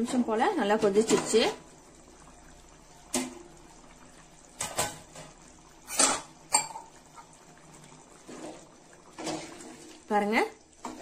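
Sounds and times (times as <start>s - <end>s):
utensils clinking on metal pot: 4.6s - 7.0s.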